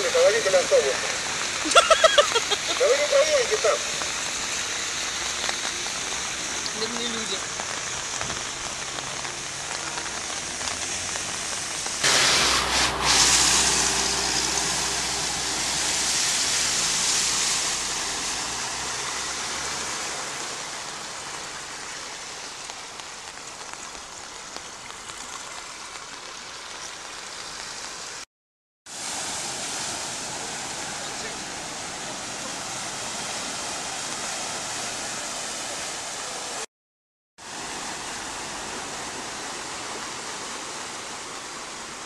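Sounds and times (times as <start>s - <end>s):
water spray: 0.0s - 23.8s, 28.9s - 36.7s
rain: 0.0s - 28.3s, 28.9s - 36.7s, 37.4s - 42.0s
running floodwater: 0.0s - 28.3s, 28.9s - 36.7s, 37.4s - 42.0s
vehicle engine rumble: 5.2s - 23.8s.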